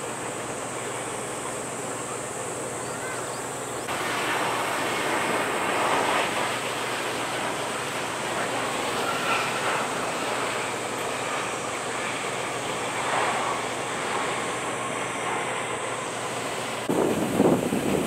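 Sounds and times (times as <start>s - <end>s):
jet engine noise: 0.0s - 18.0s
wind on microphone: 16.8s - 18.0s.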